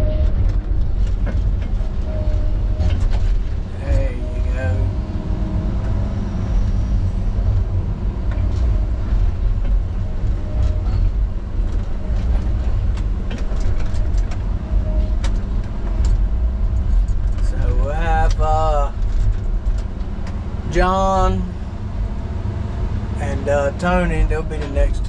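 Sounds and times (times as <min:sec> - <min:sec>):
diesel engine running: 0:00.0 - 0:25.0.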